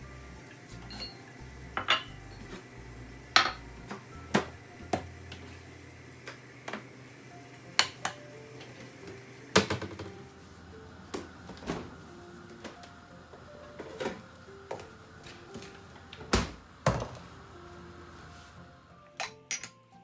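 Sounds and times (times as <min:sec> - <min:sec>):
faint background music: 0:00.0 - 0:20.0.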